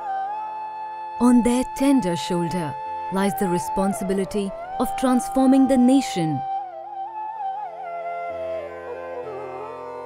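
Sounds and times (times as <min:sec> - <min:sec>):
ornamented sliding melody: 0:01.2 - 0:07.0.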